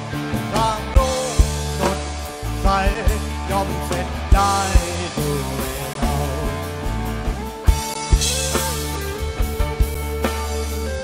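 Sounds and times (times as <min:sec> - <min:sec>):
drum kit beat: 0:00.0 - 0:11.0
pitch-bending lead guitar line: 0:00.0 - 0:11.0.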